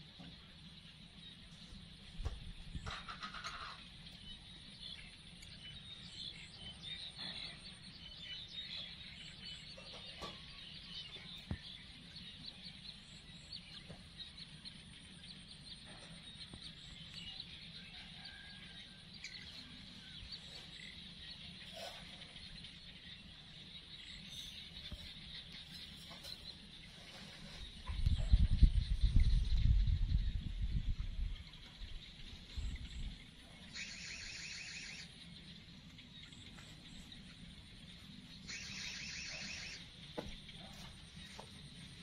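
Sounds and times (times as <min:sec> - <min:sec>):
distant birds calling: 0:00.0 - 0:42.0
small high chirps: 0:38.4 - 0:40.0.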